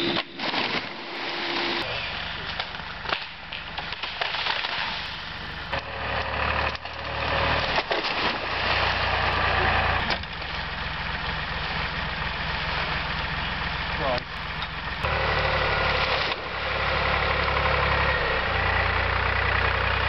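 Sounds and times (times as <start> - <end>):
tractor engine under load: 0.0 - 20.0
brushwood snapping: 2.4 - 9.0.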